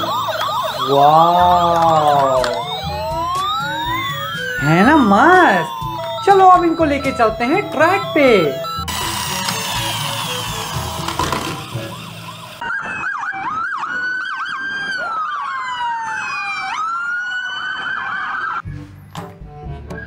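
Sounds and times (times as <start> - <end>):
background music: 0.0 - 12.6, 18.6 - 20.0
toy police sirens wailing: 0.0 - 18.6.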